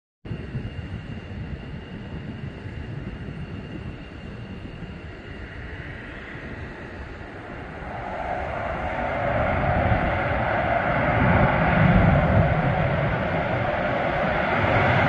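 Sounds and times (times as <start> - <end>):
jet engines running: 0.3 - 15.0
thin high whine: 0.3 - 15.0
rushing noise: 5.2 - 15.0.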